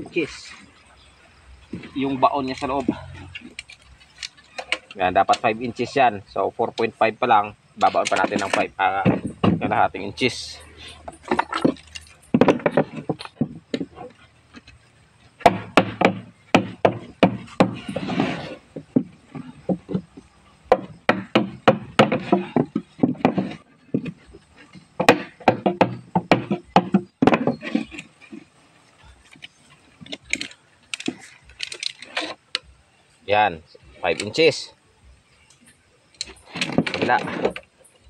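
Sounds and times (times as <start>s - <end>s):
sharp wooden knocks: 7.8s - 9.9s, 11.0s - 14.8s, 15.4s - 28.4s, 36.2s - 37.7s.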